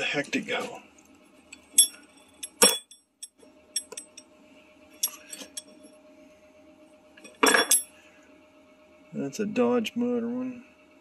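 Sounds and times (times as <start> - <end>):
metal tools clinking on wood: 1.6 - 4.2, 5.0 - 5.8, 7.3 - 7.9.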